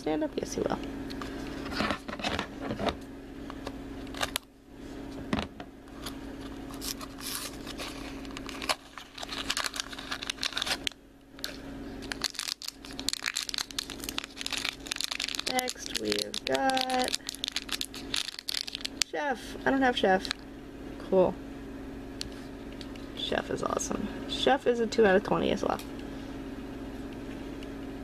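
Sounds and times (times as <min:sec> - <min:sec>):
foil bag crinkling and tearing: 0:06.6 - 0:19.1.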